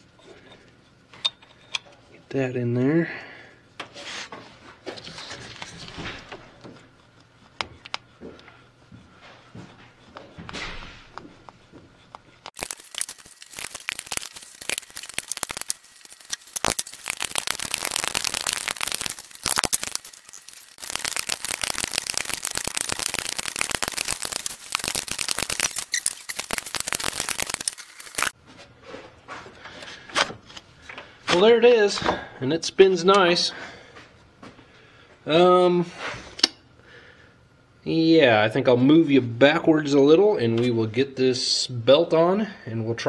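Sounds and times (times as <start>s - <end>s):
ratchet wrench clicking rapidly: 12.6s - 28.3s.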